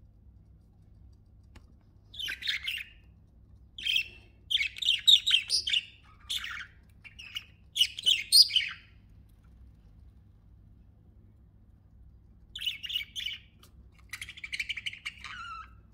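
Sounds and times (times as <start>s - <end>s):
budgerigars chirping: 2.1s - 3.0s, 3.8s - 8.9s, 12.6s - 15.9s.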